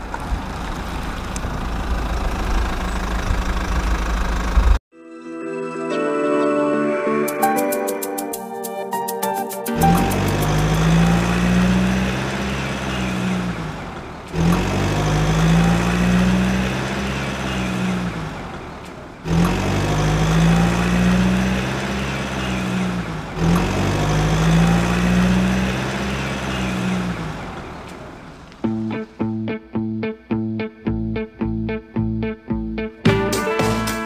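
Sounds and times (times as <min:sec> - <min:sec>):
truck engine revving: 0:09.8 - 0:29.6.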